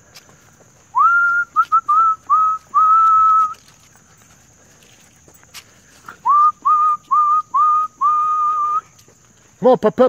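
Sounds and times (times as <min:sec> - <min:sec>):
person whistling: 0:00.9 - 0:03.6, 0:06.2 - 0:08.9.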